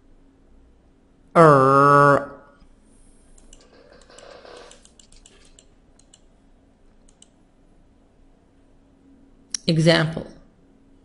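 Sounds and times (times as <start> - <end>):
faint low hum: 0.0 - 11.0
computer mouse clicking: 3.3 - 6.3, 7.0 - 7.4.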